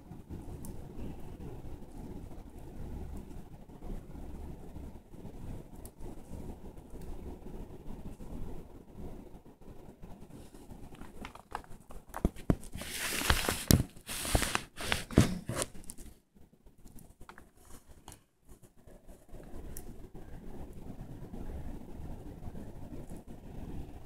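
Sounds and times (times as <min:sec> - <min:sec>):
insect chewing crunching shell: 0:10.9 - 0:12.5.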